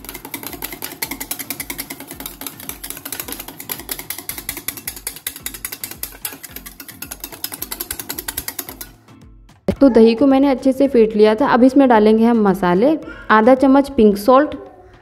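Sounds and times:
whisk clicking in a steel bowl: 0.0 - 9.1.

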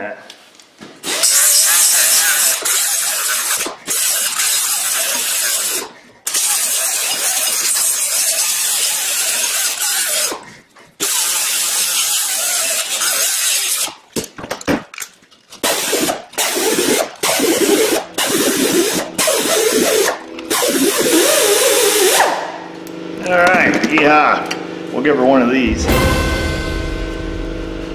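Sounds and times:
die grinder whining: 1.0 - 14.1, 15.6 - 24.8
disc grinding on metal: 1.2 - 13.9.

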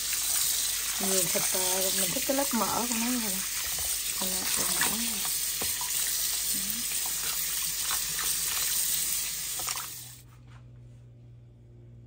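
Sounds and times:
tap water splashing: 0.0 - 10.1
faint low hum: 10.2 - 12.0.

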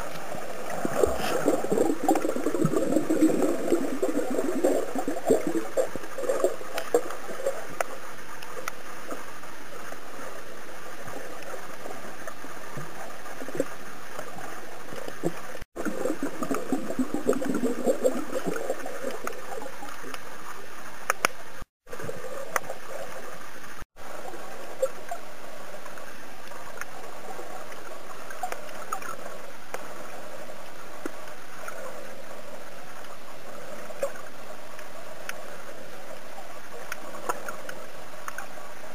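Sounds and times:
muffled underwater water wash: 0.0 - 38.9
water gurgling: 0.0 - 38.9
small clicks: 36.8 - 38.5.

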